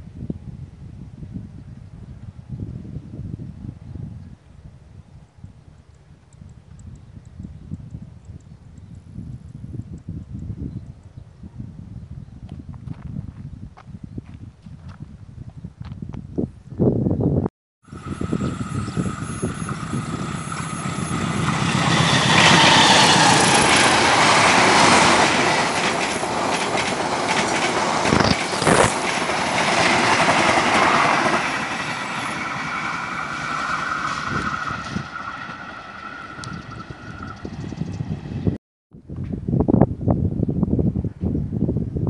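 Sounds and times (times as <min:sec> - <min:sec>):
train passing at speed: 0:17.9 - 0:38.6
wheels clattering over rails: 0:18.4 - 0:38.0.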